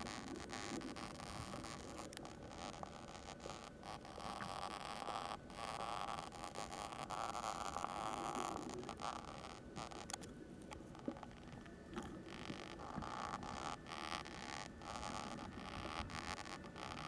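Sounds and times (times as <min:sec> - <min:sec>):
pastel scratching on board: 0:12.3 - 0:17.0.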